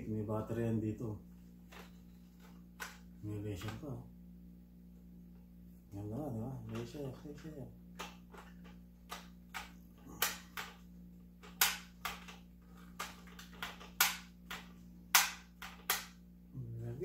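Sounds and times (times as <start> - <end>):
toy gun shot sounds: 13.6 - 16.2.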